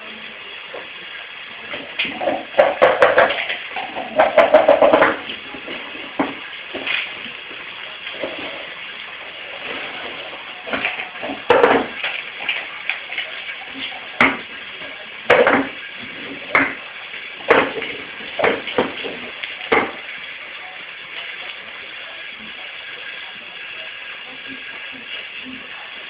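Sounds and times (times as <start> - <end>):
food bowl clattering on tile floor: 2.1 - 5.3, 10.7 - 12.0.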